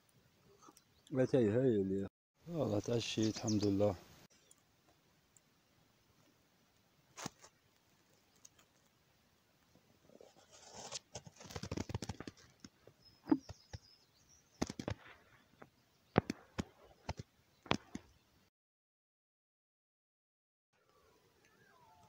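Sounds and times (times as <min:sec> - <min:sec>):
faint high chirping: 0:20.9 - 0:22.0.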